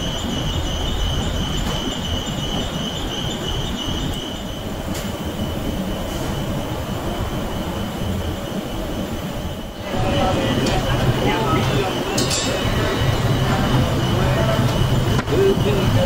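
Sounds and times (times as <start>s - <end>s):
machinery rumble: 0.0s - 16.0s
high-pitched metallic squeal: 9.8s - 16.0s.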